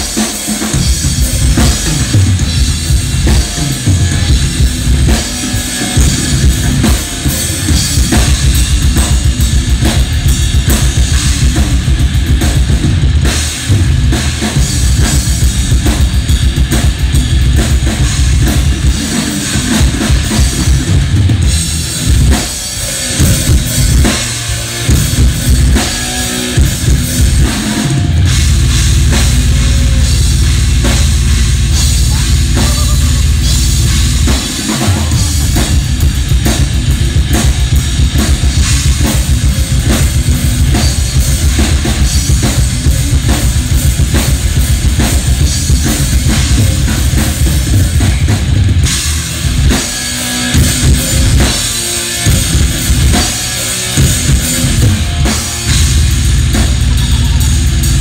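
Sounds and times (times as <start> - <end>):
drum kit solo: 0.0 - 58.0
fast bass drum strokes: 0.0 - 58.0
cymbals: 16.7 - 58.0.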